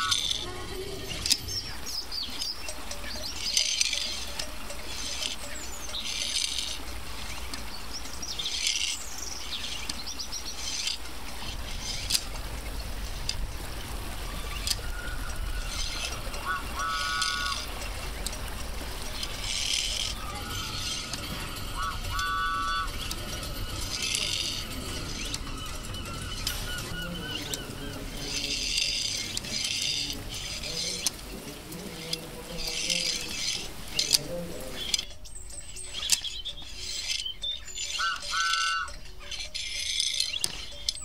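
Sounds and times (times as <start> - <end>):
high chirping bursts: 0.0 - 41.0.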